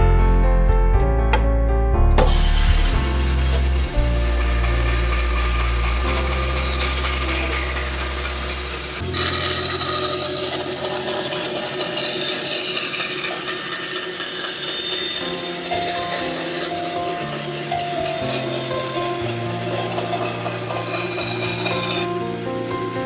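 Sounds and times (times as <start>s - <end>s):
low hum: 1.7s - 14.1s
band saw cutting wood: 2.2s - 23.0s.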